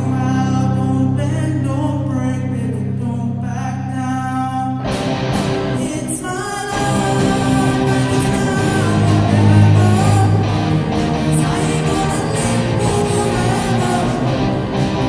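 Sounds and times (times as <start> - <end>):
lead singer singing: 0.0 - 4.9, 5.6 - 15.0
live rock band: 4.8 - 15.0.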